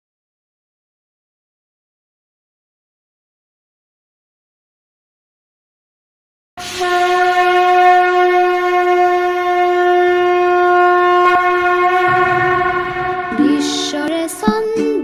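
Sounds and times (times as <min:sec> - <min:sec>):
wind instrument long note: 0:06.6 - 0:14.4.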